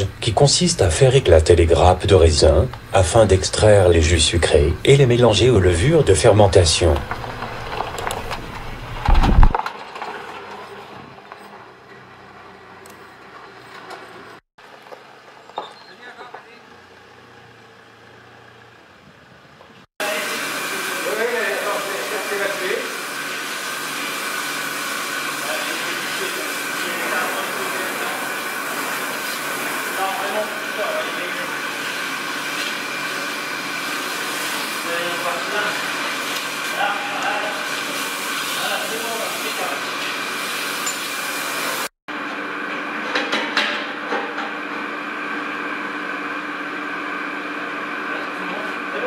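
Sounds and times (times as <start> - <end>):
faint machine hum: 0.0 - 9.5
machinery hum and hiss: 0.0 - 9.5, 20.0 - 41.9
water hose spraying hard: 20.0 - 41.9.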